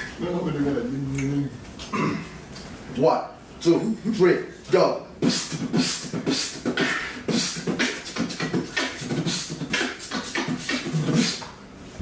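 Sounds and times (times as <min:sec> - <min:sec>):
person beatboxing: 0:05.2 - 0:11.6.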